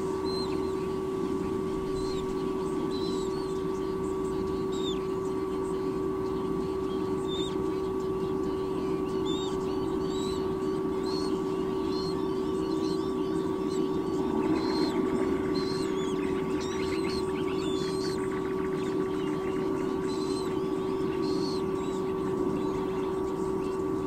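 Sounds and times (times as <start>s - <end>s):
bird chittering: 0.0s - 24.0s
steady hum: 0.0s - 24.0s
high bird chirps: 0.2s - 0.8s, 1.7s - 5.2s, 6.2s - 7.7s, 8.6s - 24.0s.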